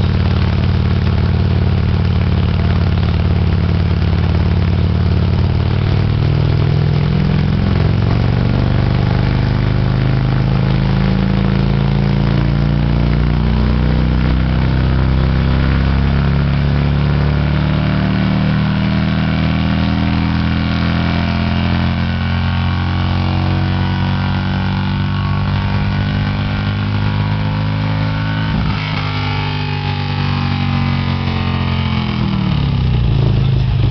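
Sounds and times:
motorcycle engine running: 0.0s - 33.9s.

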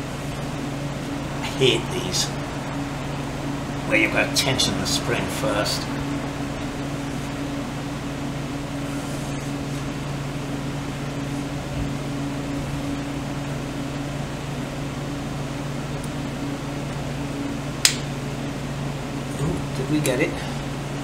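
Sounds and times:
motor humming: 0.0s - 21.0s
sharp click: 17.8s - 18.1s.

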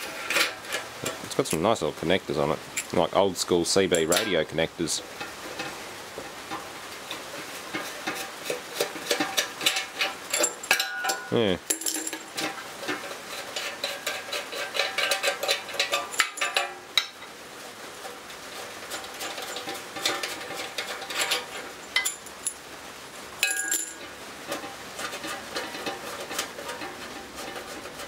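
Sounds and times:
metal clinks and rattles: 7.7s - 17.2s, 18.9s - 22.6s, 23.4s - 28.0s.

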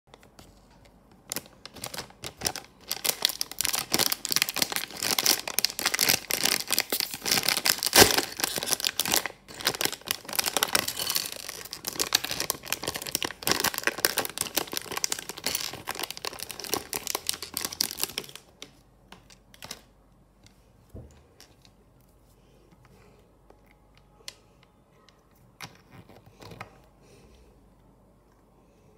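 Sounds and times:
plastic bag crinkling: 1.2s - 19.9s.

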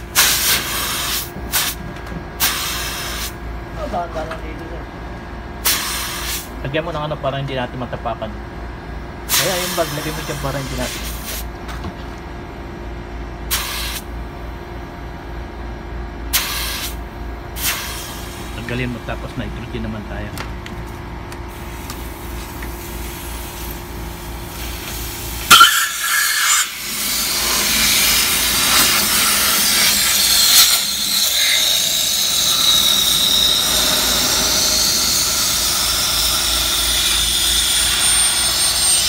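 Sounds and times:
gas hissing through a hose: 0.0s - 1.8s, 2.4s - 3.4s, 5.6s - 6.5s, 9.3s - 11.5s, 13.5s - 14.1s, 16.3s - 17.0s, 17.6s - 18.8s, 21.6s - 39.0s
faint whistle: 30.1s - 35.4s.

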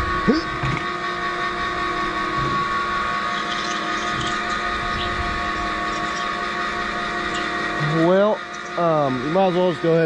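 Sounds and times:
motor whine: 0.0s - 10.0s
gearbox grinding: 2.4s - 8.8s.

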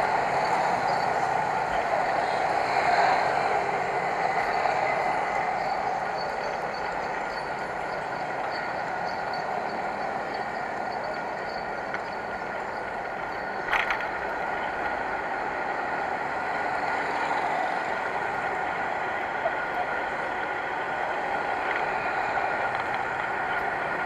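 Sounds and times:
motorcycle engine and road noise: 8.2s - 24.0s.

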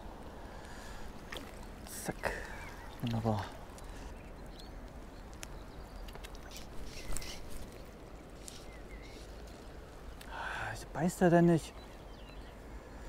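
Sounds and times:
bird chirps: 3.8s - 7.6s.

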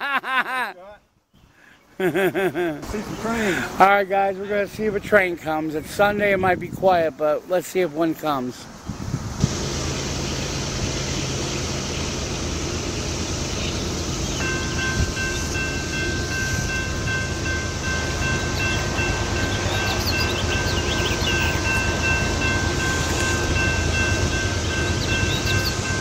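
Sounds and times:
diesel locomotive hum: 8.8s - 26.0s
cicada chorus drone: 9.4s - 26.0s
railroad crossing bell ringing: 9.6s - 26.0s.

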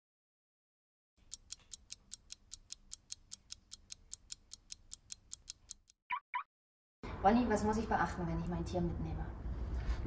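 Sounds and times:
clock ticking: 1.2s - 6.0s.

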